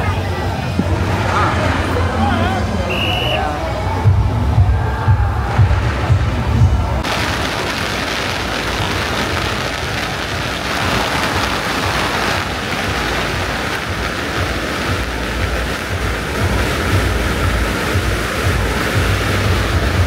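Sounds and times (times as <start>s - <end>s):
firecrackers crackling: 5.4s - 20.0s.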